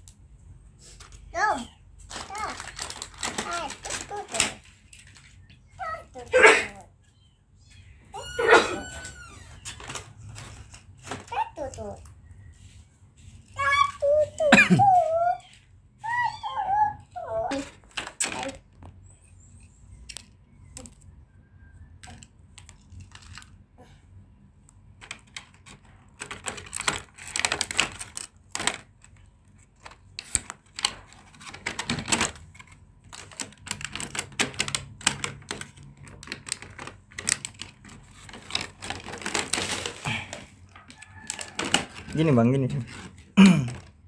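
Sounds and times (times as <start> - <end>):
plastic toy track pieces clicking: 25.0 - 29.2, 29.8 - 40.0.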